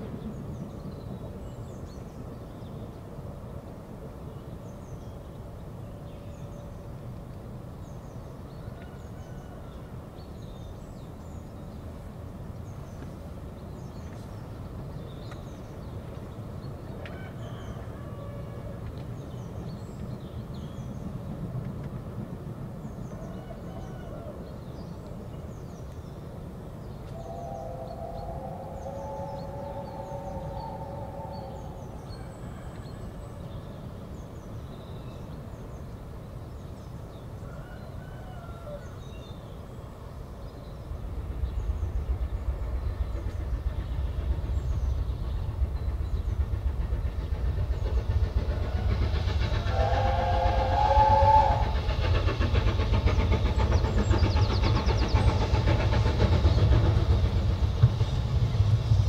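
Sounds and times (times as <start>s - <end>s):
steam locomotive low rumble: 0.0s - 59.0s
multi-tone locomotive whistle: 27.1s - 33.2s, 48.6s - 52.3s.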